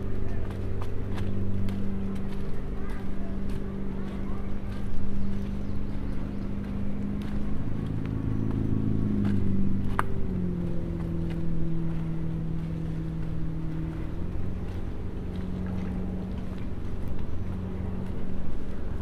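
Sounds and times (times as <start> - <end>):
motorboat engine running: 0.0 - 19.0
light ticks: 9.2 - 10.2.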